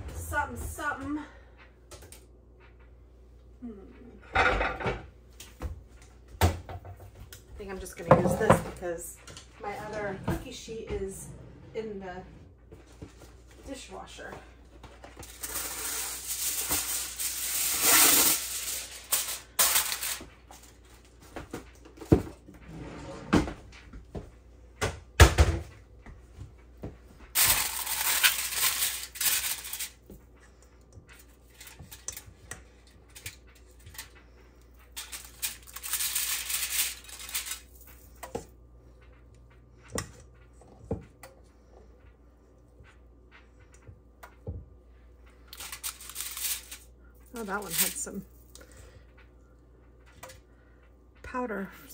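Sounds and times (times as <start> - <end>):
rustling: 27.4 - 30.0, 35.0 - 38.0, 45.5 - 48.0.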